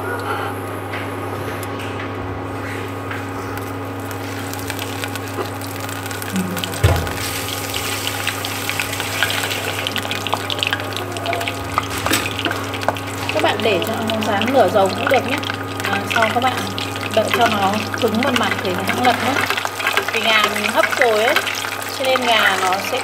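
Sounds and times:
cooktop electrical hum: 0.0 - 23.0
oil sizzling and crackling: 3.6 - 23.0
drumstick thump into oil: 6.8 - 7.4.

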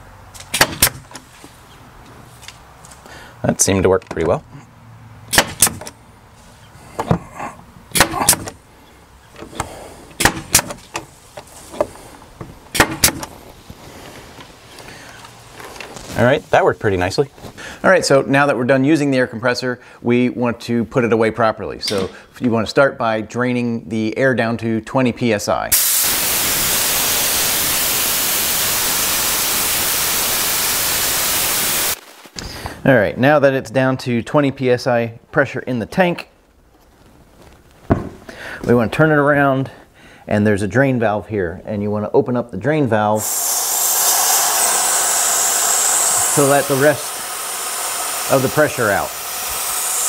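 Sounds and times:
nail gun shots into wood: 0.5 - 1.2, 5.3 - 6.0, 7.9 - 8.6, 10.2 - 10.9, 12.7 - 13.3
compressed air hissing from hose: 25.8 - 32.0, 43.2 - 50.0.

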